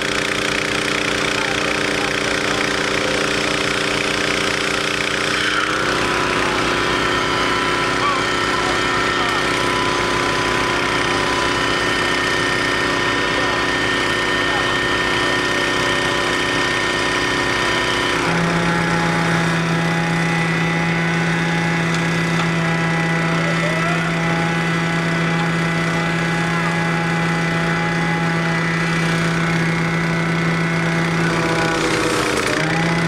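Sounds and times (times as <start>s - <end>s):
heavy truck engine running: 0.0s - 33.0s.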